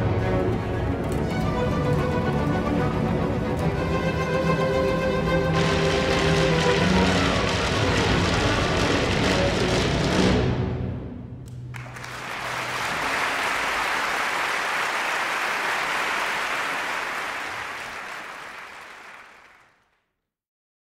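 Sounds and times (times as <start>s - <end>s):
orchestra playing: 0.0s - 14.2s
audience applause: 11.7s - 20.0s.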